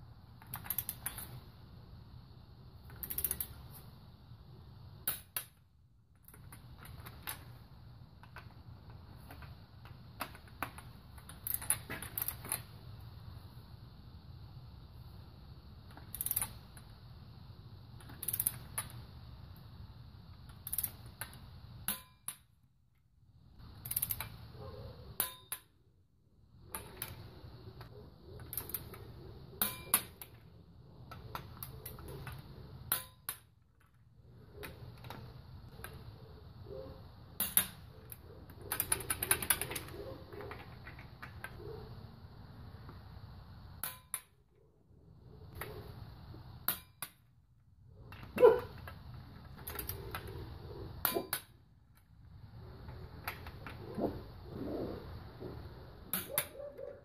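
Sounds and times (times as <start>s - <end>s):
torque wrench clicking: 0.5s - 1.4s, 2.9s - 3.6s, 16.0s - 16.6s, 18.0s - 18.9s, 20.5s - 22.4s, 23.8s - 24.4s
metal clinks of socket: 3.0s - 3.5s.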